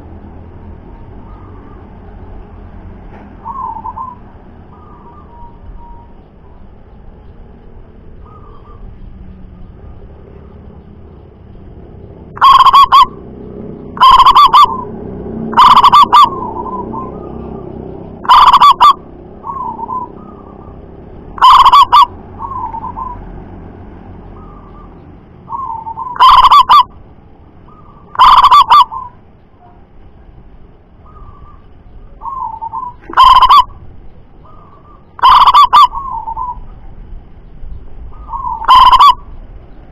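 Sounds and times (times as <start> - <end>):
dove cooing: 3.4 - 6.2, 12.3 - 14.9, 15.5 - 23.2, 24.4 - 26.9, 27.7 - 29.2, 31.0 - 33.8, 34.4 - 36.8, 38.1 - 39.3
soft trilled coos: 12.3 - 13.2, 14.0 - 14.9, 15.5 - 17.5, 18.2 - 20.8, 21.4 - 23.2, 25.5 - 26.9, 27.8 - 29.2, 31.1 - 33.8, 34.4 - 36.6, 38.2 - 39.3.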